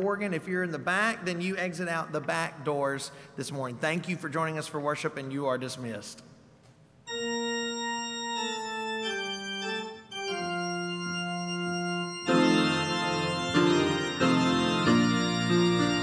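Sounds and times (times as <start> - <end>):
organ chords: 7.1 - 16.0.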